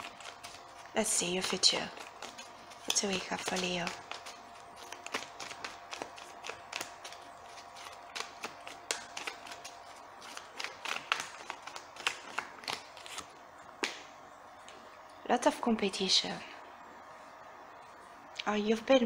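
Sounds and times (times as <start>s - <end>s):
cards being shuffled: 0.0s - 14.1s.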